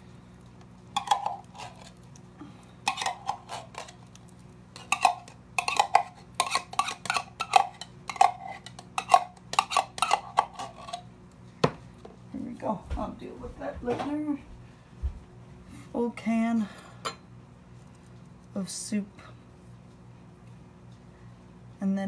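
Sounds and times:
metal spoon scraping a can: 1.0s - 2.0s, 2.8s - 4.0s, 4.8s - 11.1s.

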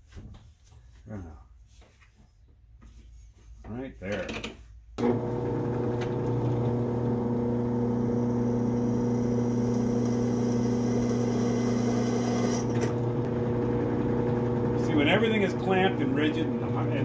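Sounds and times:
drill press drilling metal: 5.0s - 17.0s.

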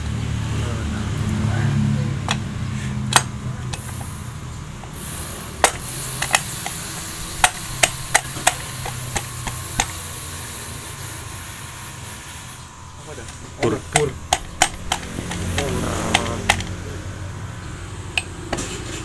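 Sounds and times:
low hum: 0.0s - 19.0s
metal knocks and clicks: 13.2s - 16.8s.

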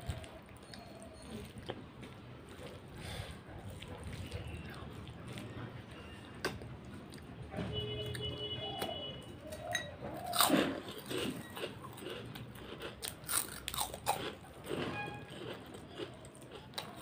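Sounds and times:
person crunching crisp food: 10.2s - 17.0s.

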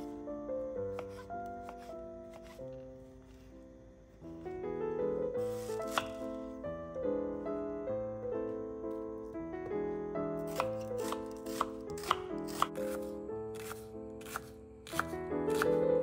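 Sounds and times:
soft piano music: 0.0s - 16.0s
knife cutting onion on board: 0.9s - 2.6s, 5.4s - 6.3s, 10.5s - 15.8s.

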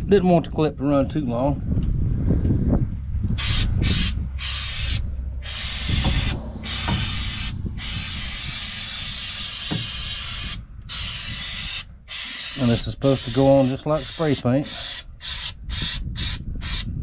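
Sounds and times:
aerosol can spraying: 3.4s - 16.8s.

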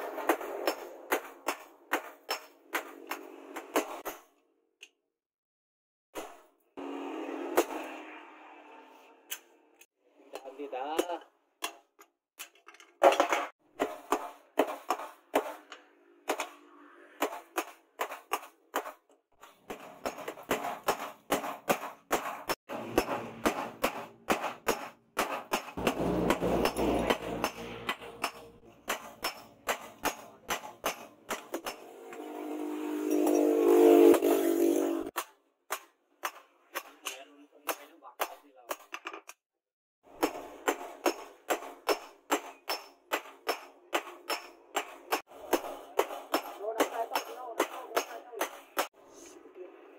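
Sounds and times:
hammer striking hot steel on anvil: 0.0s - 4.1s, 19.7s - 32.4s, 33.0s - 34.4s, 40.2s - 49.0s.

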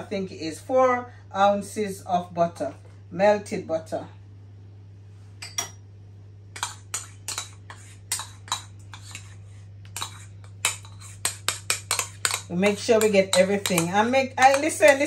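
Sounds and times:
steady low hum: 0.0s - 15.0s
metal spoon scraping plastic bowl: 10.0s - 15.0s.

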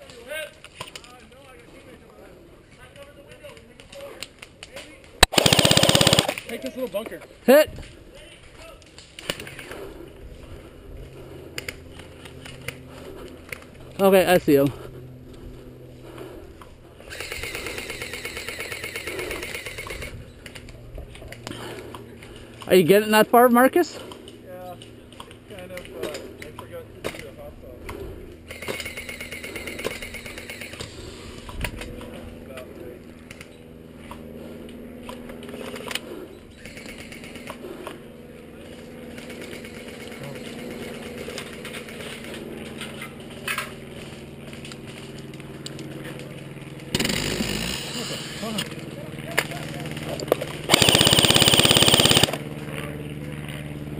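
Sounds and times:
airsoft gun firing full-auto: 5.2s - 6.4s, 50.7s - 52.4s
steady low hum: 8.8s - 22.7s, 24.0s - 53.9s.

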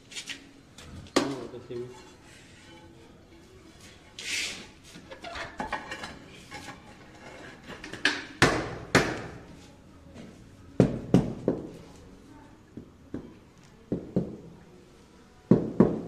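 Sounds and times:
tile scraping on mortar: 4.2s - 8.1s.

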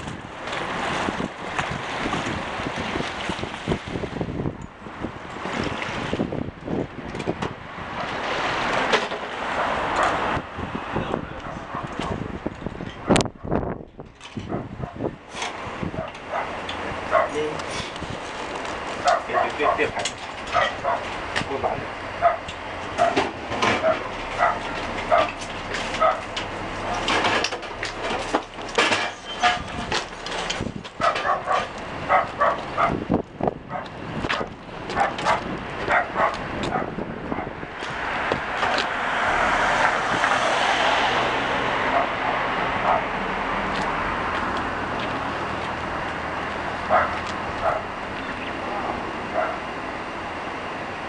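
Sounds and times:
traffic noise: 0.0s - 51.0s
dog barking: 11.4s - 12.2s, 16.0s - 17.4s, 19.0s - 21.1s, 22.2s - 23.2s, 23.8s - 25.4s, 26.0s - 26.3s, 31.0s - 33.0s, 35.0s - 37.5s, 41.9s - 42.2s, 42.8s - 43.1s, 46.9s - 47.9s, 49.4s - 49.7s
vehicle passing: 15.8s - 50.7s.

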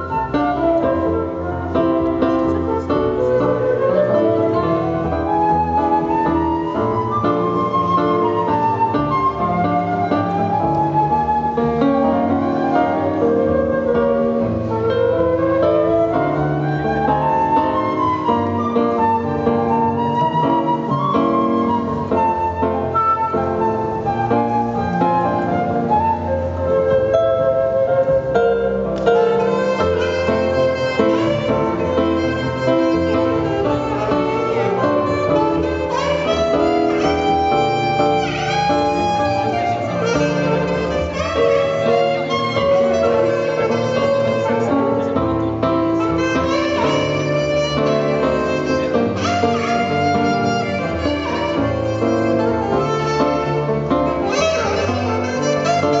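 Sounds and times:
electric piano: 0.0s - 56.0s
flute: 0.0s - 56.0s
saxophone: 0.0s - 56.0s
wind instrument melody: 0.0s - 56.0s.

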